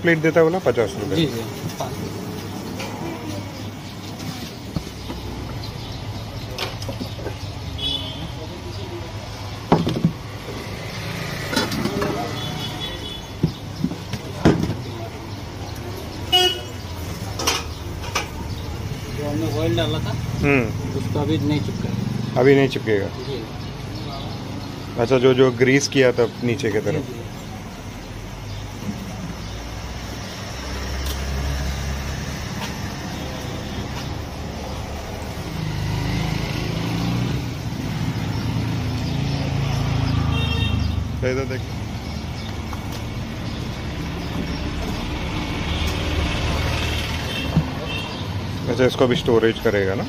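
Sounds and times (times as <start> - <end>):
traffic noise: 0.0 - 50.0
vehicle horn toot: 16.3 - 16.8, 40.3 - 40.9.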